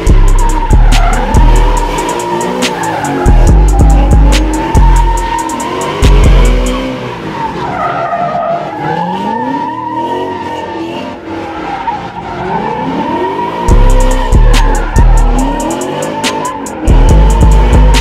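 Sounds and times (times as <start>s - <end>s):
music with heavy bass: 0.0s - 7.1s, 13.1s - 18.0s
car engine revving: 0.0s - 18.0s
tires squealing: 0.0s - 18.0s.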